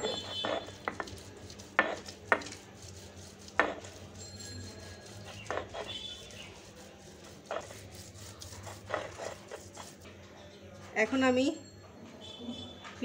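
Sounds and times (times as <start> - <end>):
stone roller wet scraping: 0.0 - 10.1.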